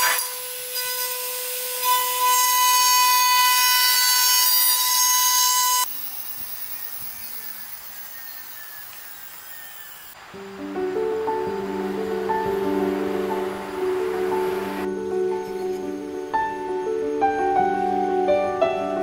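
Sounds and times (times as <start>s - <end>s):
router spindle whining: 0.0s - 10.2s
cutting hiss: 5.4s - 10.4s.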